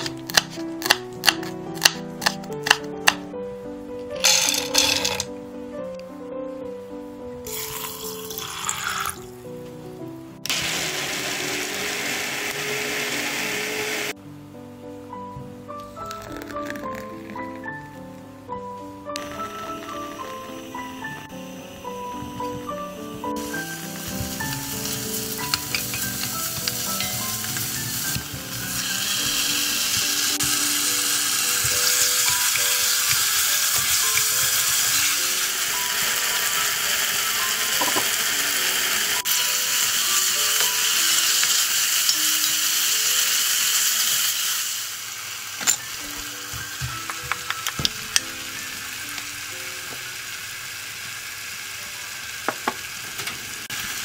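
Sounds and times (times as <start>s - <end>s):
soft background music: 0.0s - 44.4s, 45.6s - 50.7s
food sizzling in oil: 7.5s - 9.3s, 10.5s - 14.2s, 19.2s - 54.0s
spoon knocking and scraping pot: 24.1s - 30.6s, 31.6s - 35.2s, 37.8s - 38.2s.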